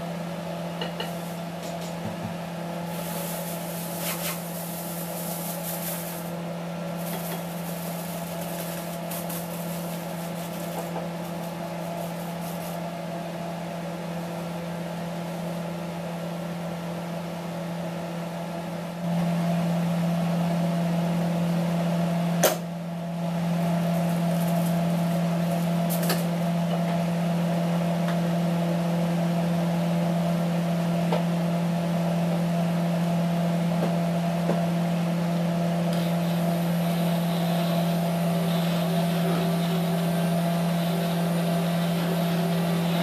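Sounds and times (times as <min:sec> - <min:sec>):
small electric motor humming: 0:36.0 - 0:43.0.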